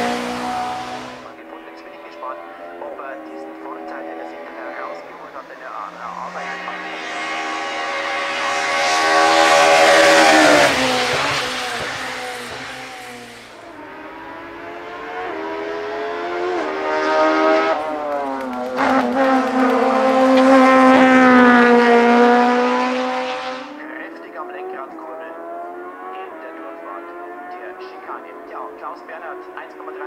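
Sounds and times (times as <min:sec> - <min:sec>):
race car engine revving: 0:00.0 - 0:30.0.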